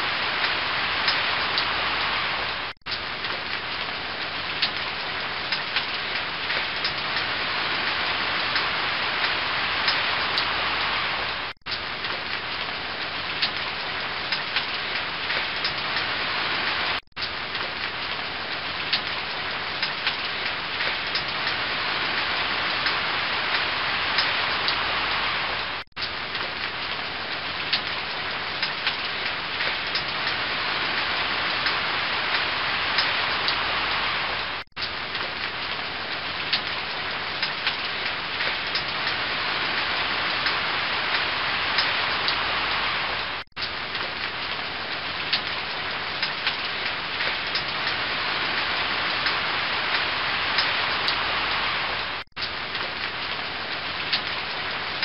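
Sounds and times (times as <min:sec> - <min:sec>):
waterfall rushing: 0:39.3 - 0:43.4, 0:48.0 - 0:52.2.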